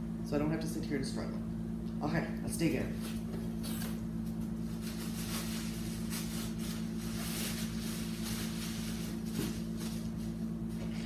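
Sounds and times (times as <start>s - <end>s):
steady low hum: 0.0s - 11.0s
paper and cardboard rustling: 4.6s - 10.4s.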